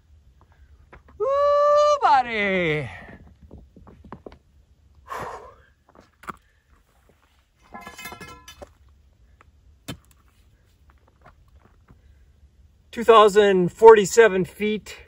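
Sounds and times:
puff of breath: 5.1 - 5.7
metallic ringing scrape: 7.6 - 8.7.

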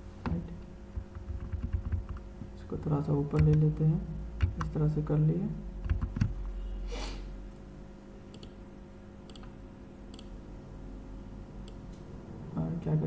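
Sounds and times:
low steady hum: 0.0 - 13.0
computer mouse clicks: 8.3 - 8.6, 9.3 - 10.3.

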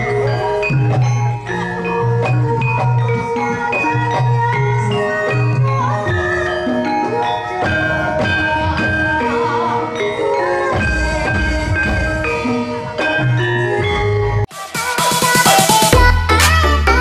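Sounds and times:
metallophones ringing: 0.0 - 14.5
gamelan music: 0.0 - 15.1
drum strokes: 7.5 - 16.0.

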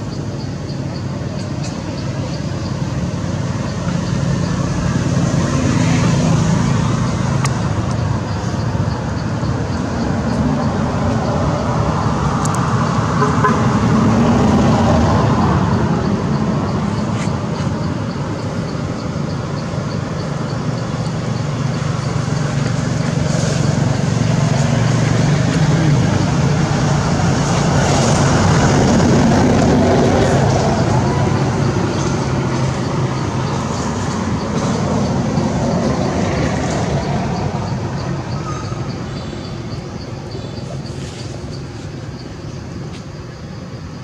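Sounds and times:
traffic noise: 0.0 - 44.0
vehicle engine humming: 0.0 - 44.0.

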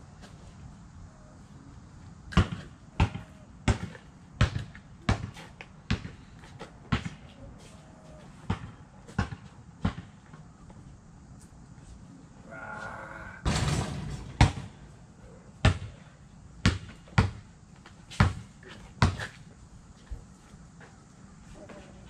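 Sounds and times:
thuds on pavement: 18.2 - 19.4.

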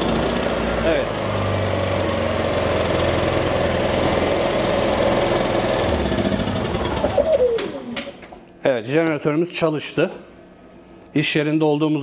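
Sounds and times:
generator engine running: 0.0 - 8.5.

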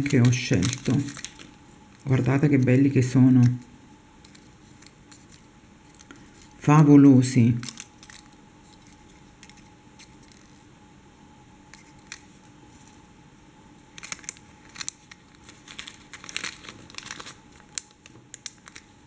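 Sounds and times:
plastic bag crinkling: 0.0 - 6.6, 7.5 - 10.6, 13.9 - 19.0.

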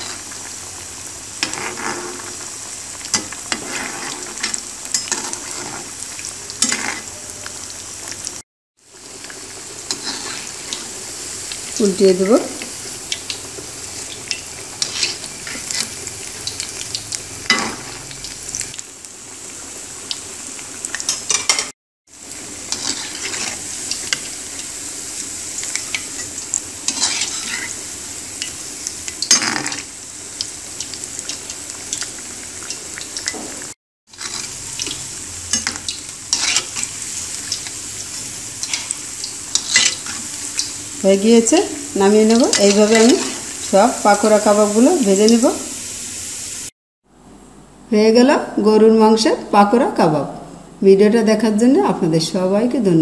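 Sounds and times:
food deep-frying in oil: 0.0 - 46.7
metal spatula scraping pan: 6.6 - 7.2, 14.3 - 16.0, 22.7 - 23.6, 26.9 - 27.8, 34.1 - 37.0, 38.6 - 40.3, 42.3 - 43.6.

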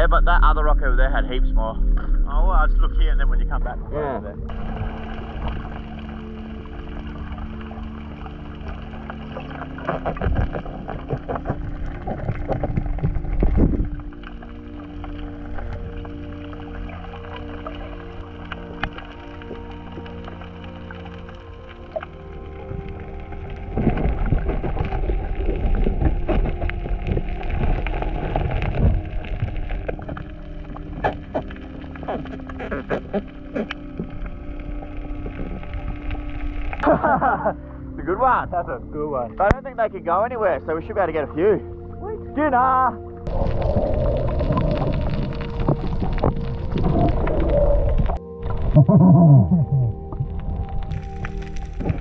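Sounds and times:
deep rumble with crackling: 0.0 - 52.0
muffled underwater thumps and scraping: 9.5 - 14.7, 23.7 - 35.7.

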